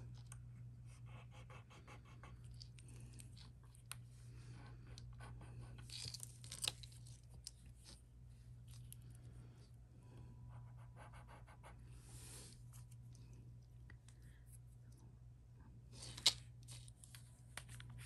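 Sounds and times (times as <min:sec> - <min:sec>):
scratching on jewelry: 0:04.5 - 0:09.1.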